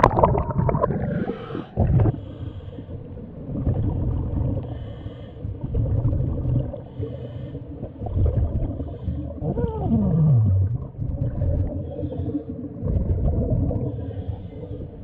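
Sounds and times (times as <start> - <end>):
exhaled bubbles rumbling underwater: 0.0 - 15.0
regulator hiss on inhale: 1.2 - 3.2, 4.6 - 5.6, 6.8 - 7.9, 13.9 - 15.0.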